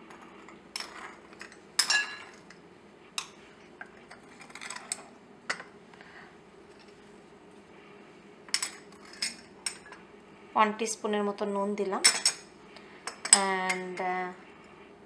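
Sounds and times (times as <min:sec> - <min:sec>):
metal spoons clinking on ceramic bowls: 0:00.8 - 0:02.4, 0:12.0 - 0:12.4.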